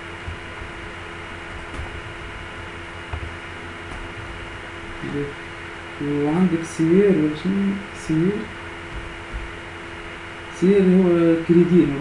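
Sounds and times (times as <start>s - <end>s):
background hiss and hum: 0.0s - 12.0s.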